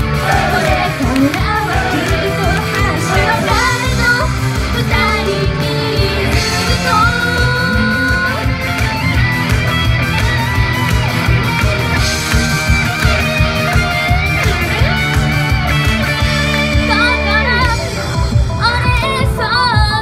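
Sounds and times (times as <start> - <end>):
girls singing: 0.0 - 8.3
pop-rock band backing track: 0.0 - 20.0.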